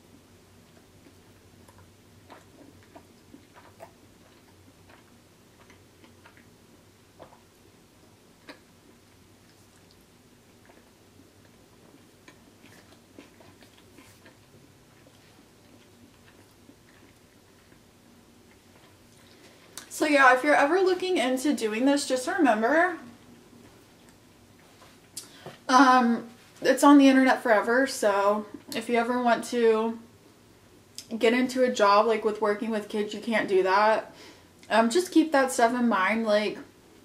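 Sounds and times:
chewing crunchy chips: 0:00.7 - 0:07.5, 0:08.4 - 0:19.9.

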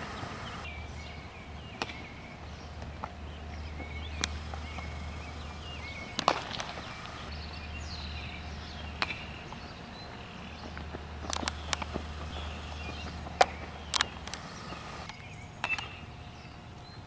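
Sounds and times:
birds chirping: 0:00.0 - 0:17.0
low steady hum: 0:00.0 - 0:17.0
baseball bat cracks: 0:06.2 - 0:07.0.

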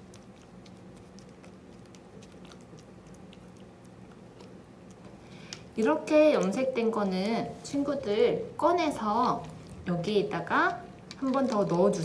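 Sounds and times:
wet squishing: 0:00.0 - 0:07.5.

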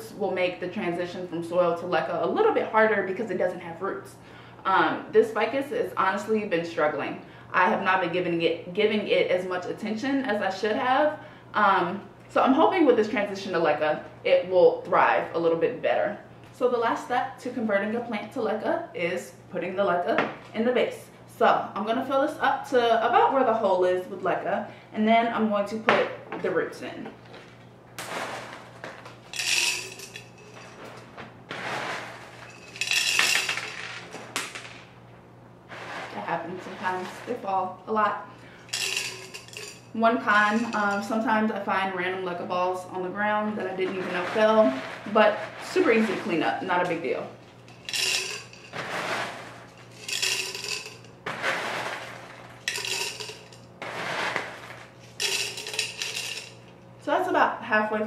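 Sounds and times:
clay pebbles rattling into glass vase: 0:29.3 - 0:31.0, 0:31.6 - 0:34.1, 0:38.7 - 0:41.1, 0:47.7 - 0:56.6.

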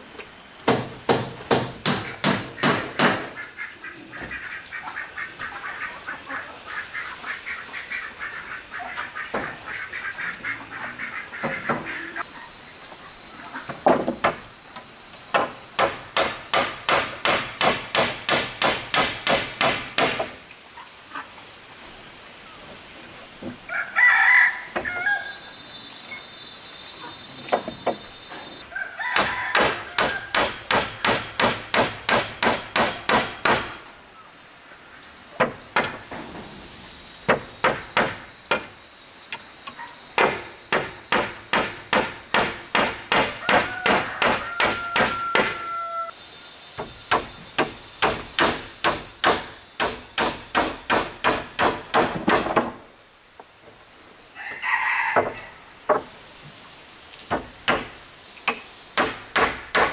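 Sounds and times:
rooster crowing: 0:23.7 - 0:25.6, 0:28.6 - 0:30.4, 0:43.3 - 0:46.2, 0:54.3 - 0:55.7.

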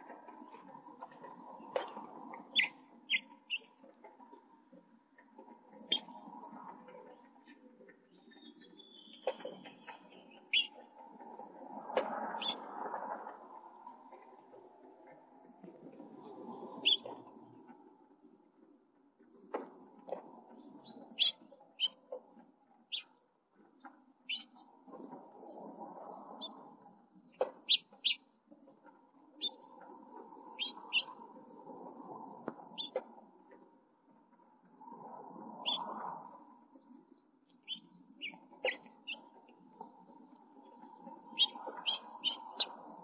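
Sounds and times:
nestlings cheeping: 0:41.4 - 0:42.7.

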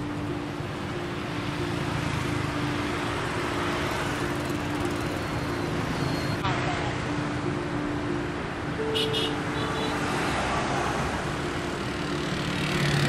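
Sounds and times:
motorbikes and cars passing: 0:00.0 - 0:13.0.

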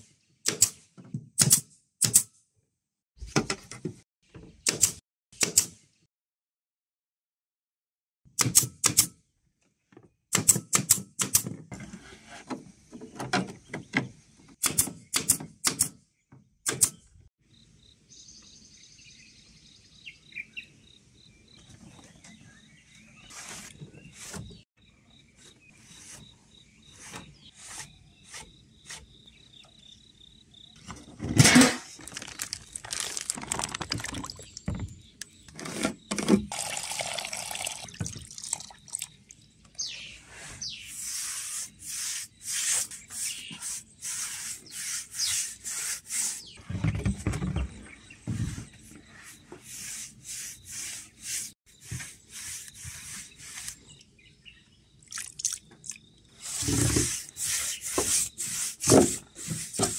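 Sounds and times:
brush swishing in water: 0:49.1 - 0:53.8.

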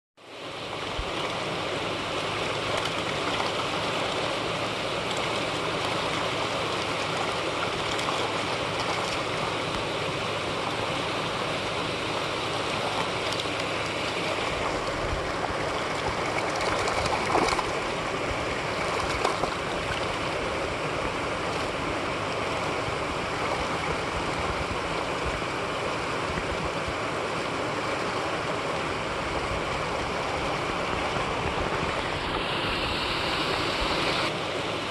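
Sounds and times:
water rushing over spillway: 0:00.2 - 0:34.9
fish splashing: 0:01.0 - 0:26.5.

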